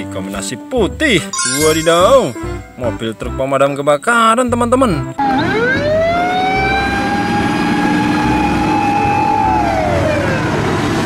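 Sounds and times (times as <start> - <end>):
fire engine siren wailing: 5.2 - 11.0.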